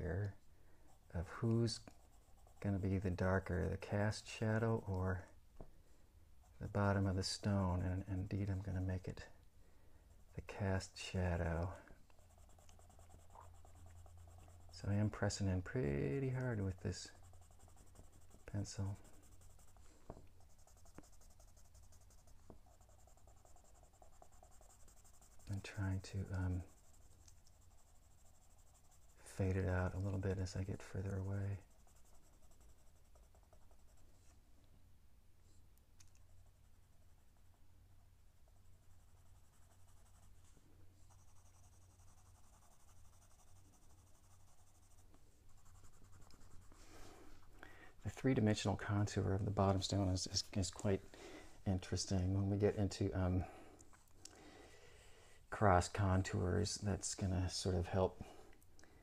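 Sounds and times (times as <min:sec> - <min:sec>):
pencil scratching on paper: 0:00.8 - 0:04.7, 0:10.1 - 0:34.4, 0:38.4 - 0:47.4
light pencil ticks: 0:11.6 - 0:14.5, 0:22.4 - 0:28.9, 0:35.7 - 0:36.4, 0:46.1 - 0:46.5.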